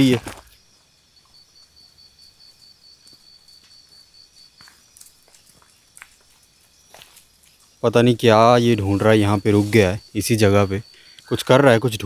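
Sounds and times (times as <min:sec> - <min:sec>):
footsteps on pebbles: 0:00.0 - 0:00.6, 0:03.0 - 0:07.9
insect chirping: 0:00.0 - 0:12.0.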